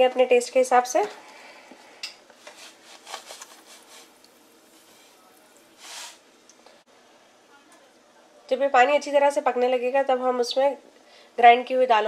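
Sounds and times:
brief hiss: 0:02.6 - 0:06.3.

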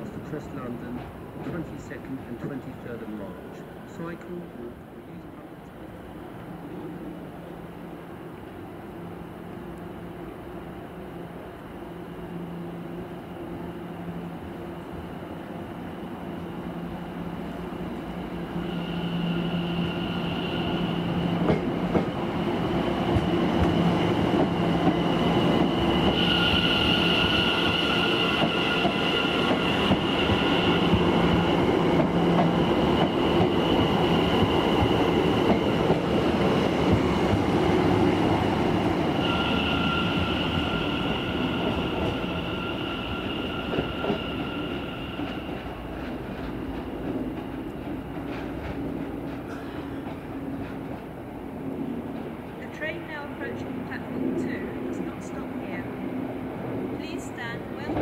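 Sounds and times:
train wheels on rails: 0:00.0 - 0:03.4, 0:17.9 - 0:55.8, 0:56.6 - 0:58.0.

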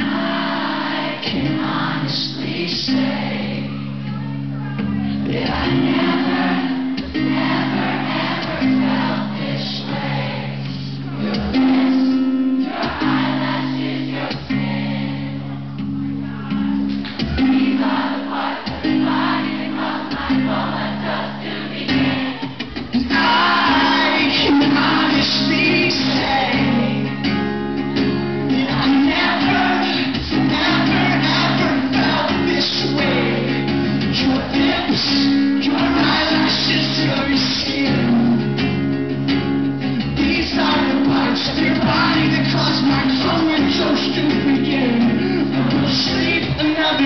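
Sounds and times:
acoustic guitars strumming: 0:00.0 - 0:47.0
person singing: 0:01.3 - 0:06.7, 0:22.0 - 0:27.1, 0:28.5 - 0:38.6, 0:40.1 - 0:47.0.

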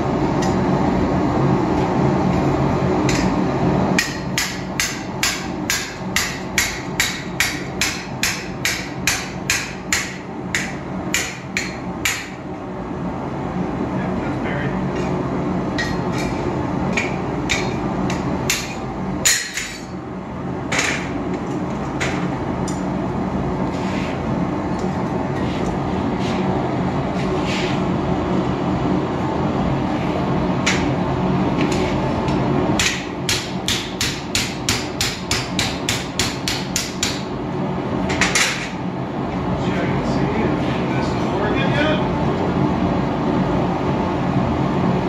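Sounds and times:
forge humming: 0:00.0 - 0:45.0
hammer striking steel on anvil: 0:03.0 - 0:03.4, 0:04.0 - 0:12.4, 0:15.8 - 0:19.9, 0:32.8 - 0:37.3.

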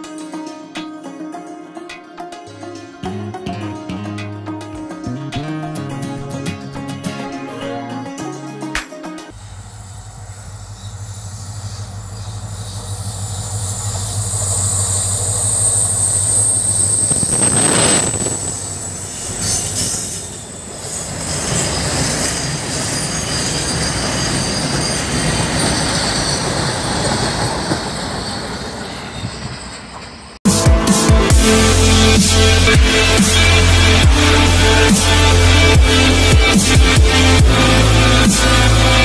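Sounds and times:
locomotive engine hum: 0:09.3 - 0:22.9
high wheel squeal: 0:09.4 - 0:30.4.

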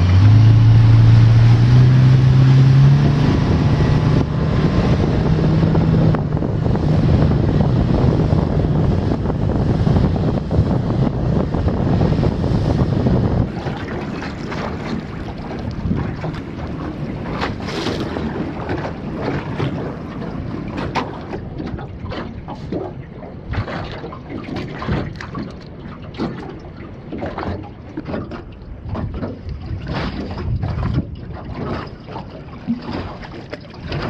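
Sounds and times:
knocks and splashes: 0:00.0 - 0:34.0
water slapping boat hull: 0:00.0 - 0:34.0
wind buffeting microphone: 0:00.0 - 0:34.0.

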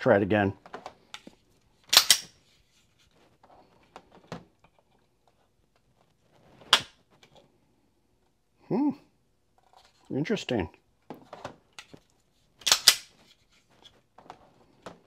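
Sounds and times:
pistol dry-fire click: 0:01.9 - 0:02.3, 0:12.6 - 0:13.1.

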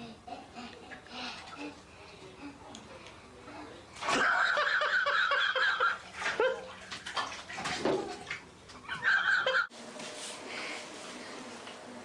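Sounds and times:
bathwater splashing in a tub: 0:04.0 - 0:08.8.

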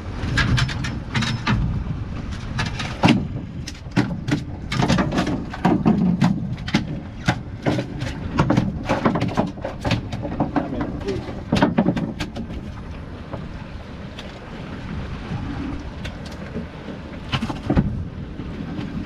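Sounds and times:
water noise: 0:00.0 - 0:19.0
wind: 0:00.0 - 0:19.0
knocks and clicks of handling gear: 0:00.3 - 0:13.5.

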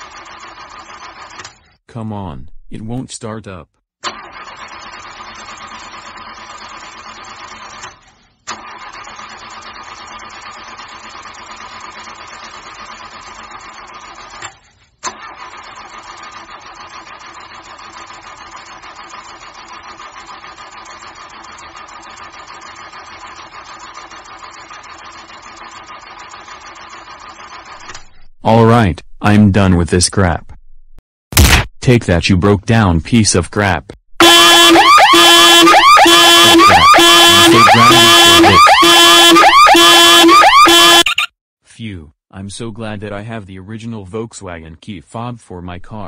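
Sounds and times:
car starter cranking engine: 0:00.0 - 0:01.8, 0:04.0 - 0:29.7, 0:34.2 - 0:41.0
starter sharp click: 0:31.3 - 0:31.8.

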